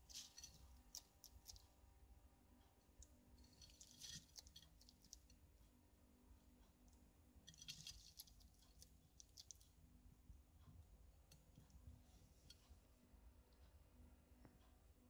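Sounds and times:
lizard chewing lettuce: 0:07.5 - 0:09.6.

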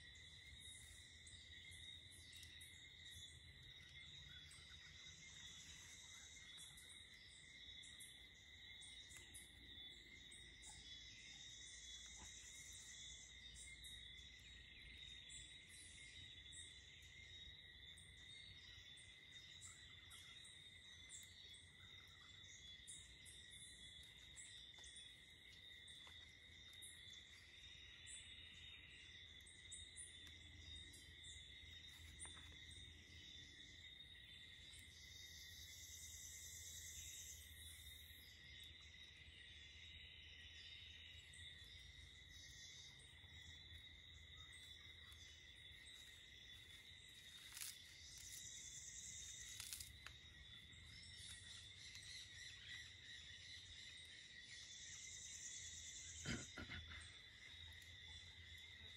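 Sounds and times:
high insect chirps: 0:00.0 - 0:58.9
insect chorus trilling: 0:00.0 - 0:58.9.

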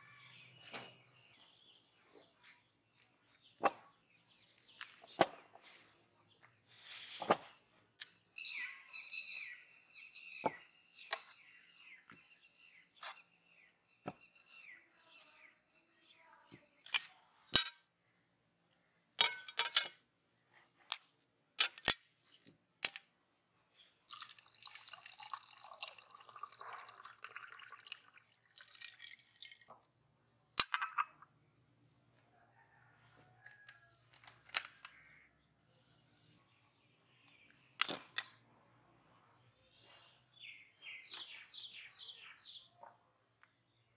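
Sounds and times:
cricket chirping: 0:00.0 - 0:36.4
crockery and cutlery clinking: 0:19.2 - 0:20.0.

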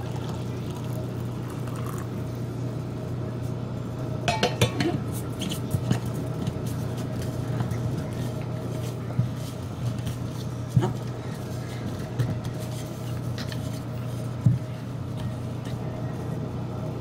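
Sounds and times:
steady low hum: 0:00.0 - 0:17.0
metal lid clinking on jar: 0:04.3 - 0:05.0.

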